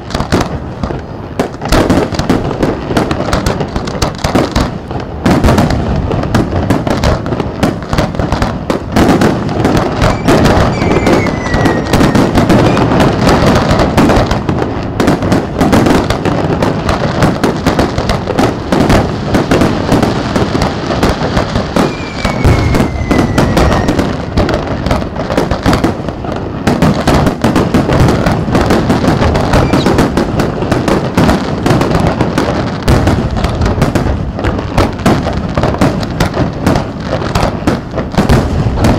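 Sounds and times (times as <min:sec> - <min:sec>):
fireworks bursting in a barrage: 0:00.0 - 0:38.9.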